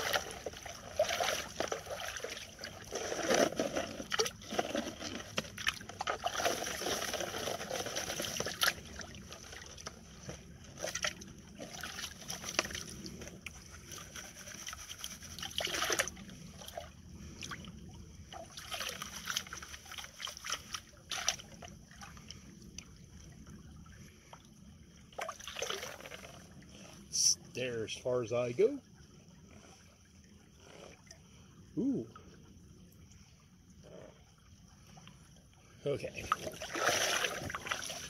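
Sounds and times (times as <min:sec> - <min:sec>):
water sloshing and trickling: 0:00.0 - 0:38.0
water splashes: 0:00.0 - 0:38.0.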